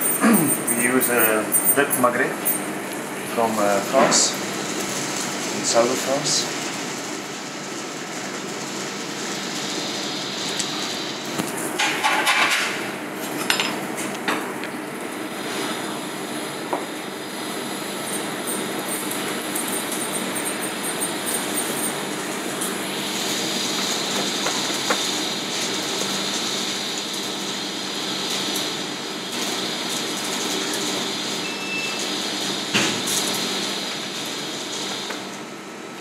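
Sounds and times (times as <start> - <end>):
kitchen ventilation hum and hiss: 0.0 - 36.0.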